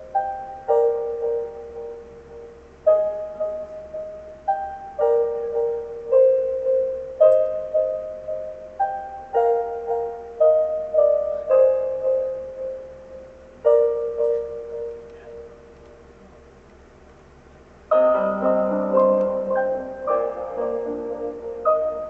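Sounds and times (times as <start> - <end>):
slow solo piano melody: 0.0 - 16.4, 17.9 - 22.0.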